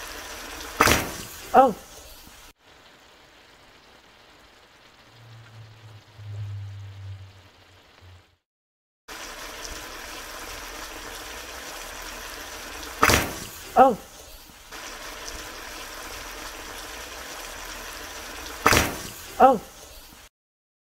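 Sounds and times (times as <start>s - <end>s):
liquid simmering in a wok: 0.0s - 8.4s, 9.1s - 20.3s
low hum: 5.0s - 8.4s.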